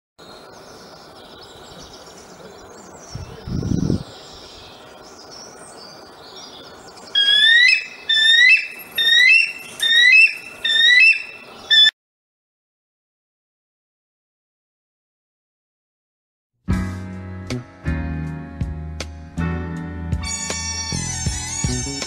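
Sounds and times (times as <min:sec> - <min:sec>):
eagle calling: 0:07.1 - 0:11.9.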